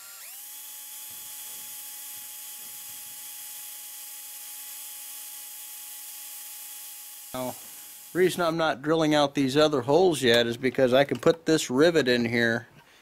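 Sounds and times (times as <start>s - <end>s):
cordless drill whining: 0.0s - 8.4s.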